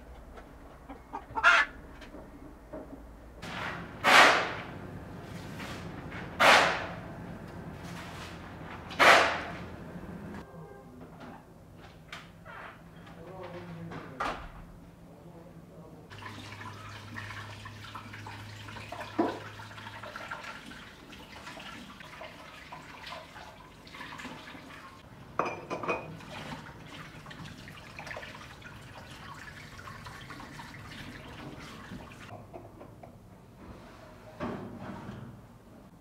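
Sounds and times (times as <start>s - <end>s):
tap running into a sink: 18.9s - 19.6s
knocks and clinks at counter: 25.4s - 26.1s.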